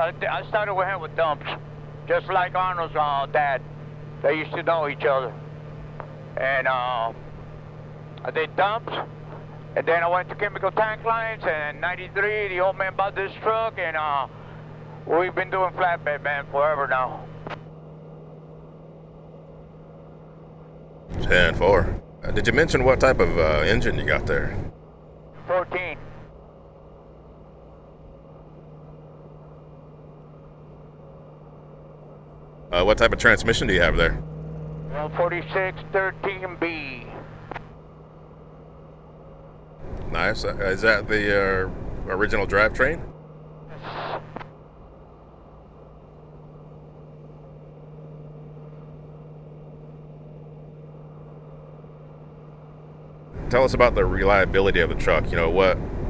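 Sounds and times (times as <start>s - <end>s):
road noise: 0.0s - 26.3s, 32.1s - 46.3s, 53.2s - 56.0s
highway traffic drone: 0.0s - 56.0s
vehicle engine hum: 0.0s - 56.0s.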